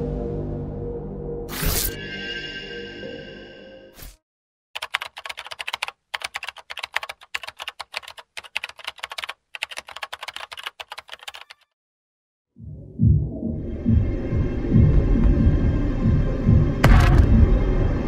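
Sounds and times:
keyboard typing clicks: 0:04.8 - 0:11.7.

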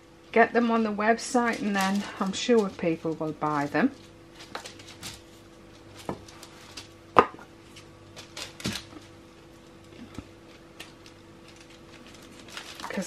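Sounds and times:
paper rustling: 0:01.4 - 0:06.9, 0:09.9 - 0:13.0.

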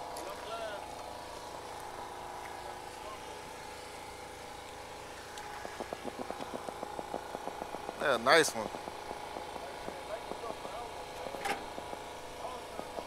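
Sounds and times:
mechanical engine hum: 0:00.0 - 0:13.0
rapid even clicking: 0:05.3 - 0:12.6.

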